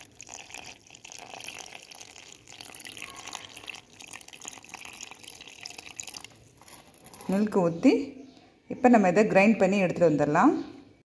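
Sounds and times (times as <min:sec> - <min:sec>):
milk pouring into steel jar: 0:00.0 - 0:07.6.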